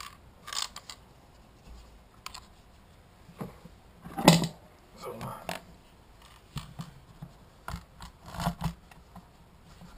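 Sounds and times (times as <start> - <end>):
plastic parts clicking and knocking: 0.0 - 1.0, 5.2 - 9.3.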